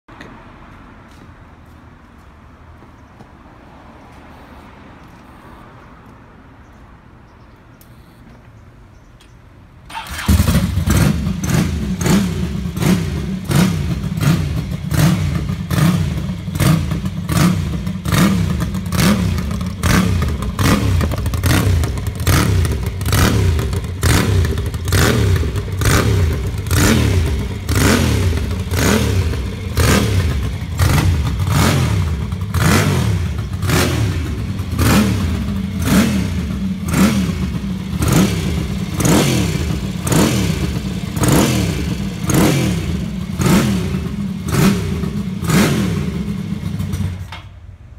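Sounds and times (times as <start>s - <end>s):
motorcycle engine revving: 9.9s - 47.3s.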